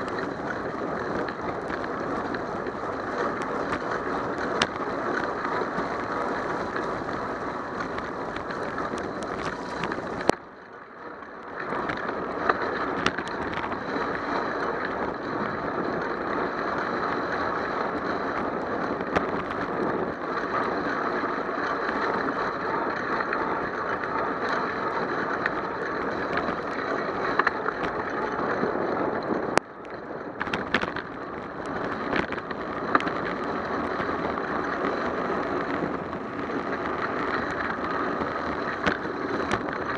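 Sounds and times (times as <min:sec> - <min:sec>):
bicycle tyre hiss on wet road: 0:00.0 - 0:10.3
wind on microphone: 0:00.0 - 0:10.6, 0:11.4 - 0:39.9
bike clicks and rattles: 0:00.0 - 0:39.9.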